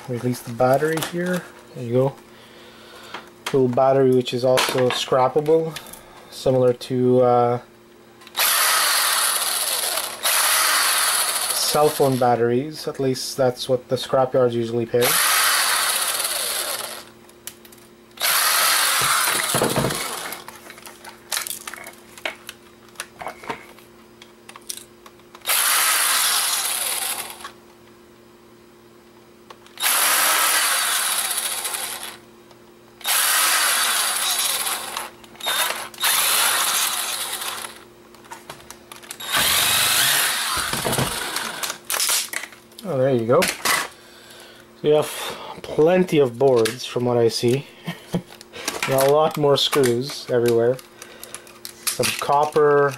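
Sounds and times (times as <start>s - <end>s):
electric screwdriver running: 8.4s - 12.2s, 15.0s - 17.1s, 18.2s - 20.4s, 25.4s - 27.6s, 29.8s - 32.2s, 33.0s - 37.8s, 39.1s - 42.1s
screws and plastic rattling: 18.2s - 21.9s, 33.0s - 37.8s.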